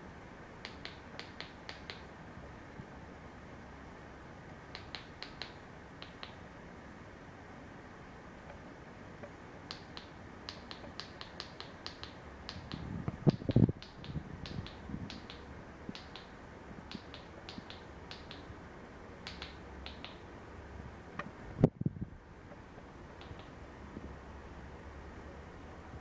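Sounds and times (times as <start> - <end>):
remote control button clicks: 19.3 - 20.2, 23.2 - 23.6.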